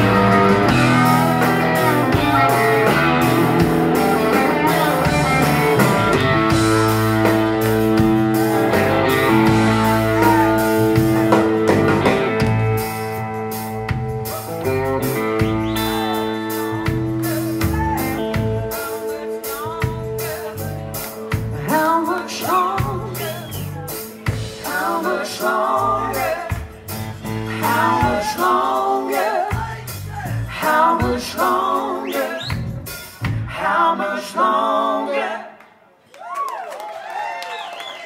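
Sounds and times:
man singing: 0.0 - 7.0, 14.3 - 32.6
guitar chords ringing: 0.0 - 20.4
live band playing: 0.0 - 33.6.

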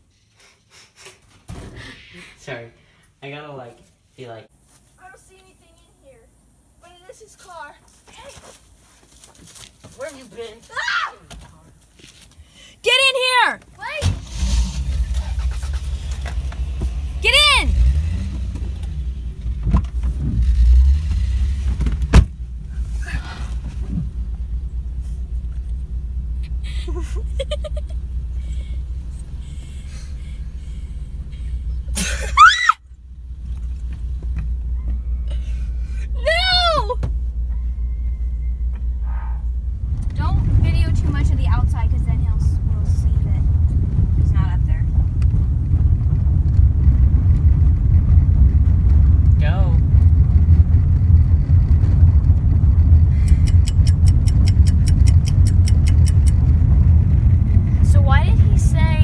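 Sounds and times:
car engine rumbling: 1.8 - 59.0
fast even ticking: 53.1 - 56.6.

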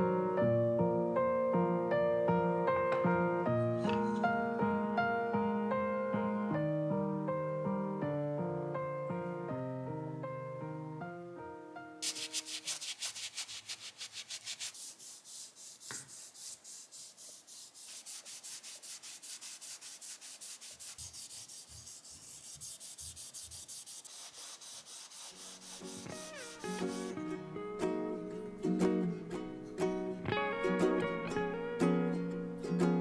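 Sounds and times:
cloth rubbing on wood: 12.0 - 27.2.

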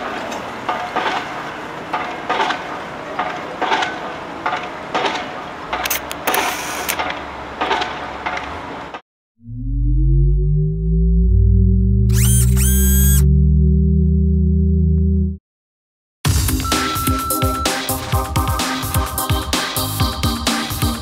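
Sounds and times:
mechanical machine noise: 0.2 - 9.0, 12.1 - 13.3
deep musical tone: 9.4 - 15.4.

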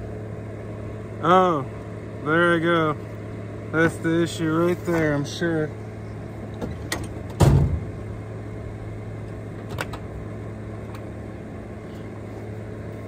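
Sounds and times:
low mechanical hum: 0.0 - 13.0
sharp thump: 6.6 - 8.0.

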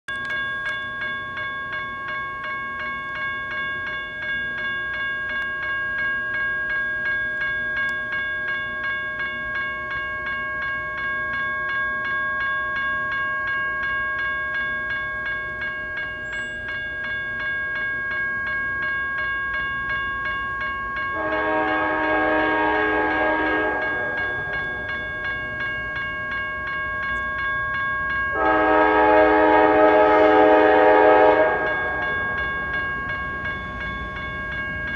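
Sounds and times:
crossing bell dinging: 0.1 - 34.9
locomotive air horn blast: 21.2 - 24.3, 28.3 - 32.0.

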